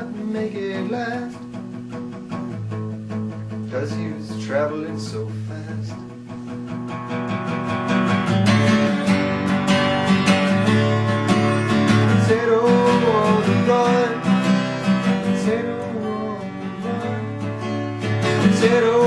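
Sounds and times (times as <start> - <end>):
man singing: 0.0 - 1.6, 3.6 - 6.2, 11.5 - 19.0
acoustic guitar strumming: 0.0 - 19.0.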